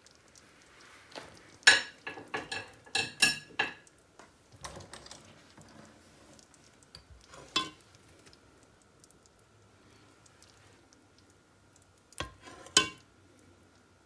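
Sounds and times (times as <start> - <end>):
metal utensils clinking on dishes: 1.7 - 3.8, 7.3 - 7.8, 12.2 - 13.0.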